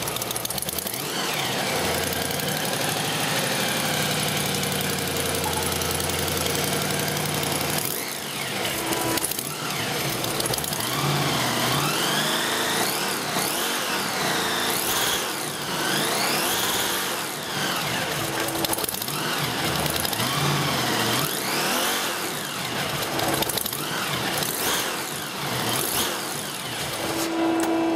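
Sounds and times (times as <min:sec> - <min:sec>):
supercharged engine idling and revving: 0:00.0 - 0:27.9.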